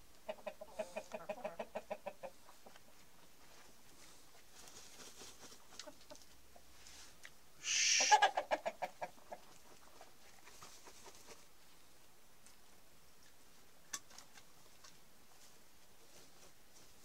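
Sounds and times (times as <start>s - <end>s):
chickens rustling: 0.0s - 17.0s
chicken clucking squawks: 0.2s - 3.1s, 4.8s - 6.7s, 7.6s - 11.5s.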